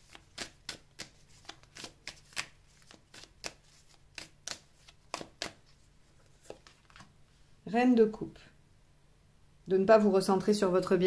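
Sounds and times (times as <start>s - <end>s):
cards being shuffled: 0.0s - 7.1s.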